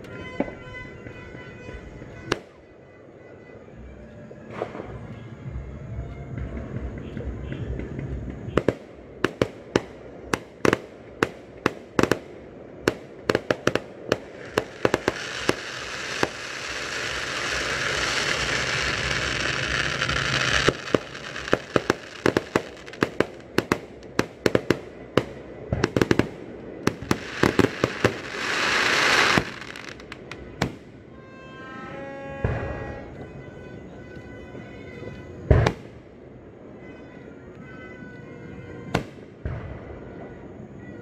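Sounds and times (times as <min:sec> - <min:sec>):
fireworks bangs: 0:06.4 - 0:31.4, 0:32.0 - 0:33.4, 0:34.6 - 0:37.0, 0:38.0 - 0:41.0
fireworks hissing: 0:13.0 - 0:24.4, 0:25.2 - 0:30.8
loud rushing hiss: 0:13.9 - 0:24.5, 0:26.4 - 0:30.2.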